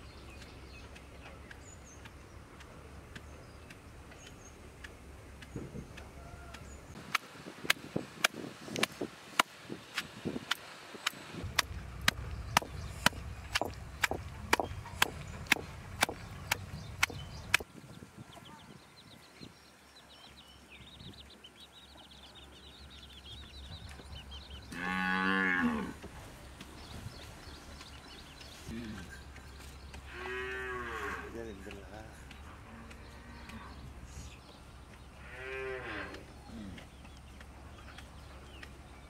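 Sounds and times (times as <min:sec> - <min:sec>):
pestle pounding in stone mortar: 0:11.6 - 0:17.6.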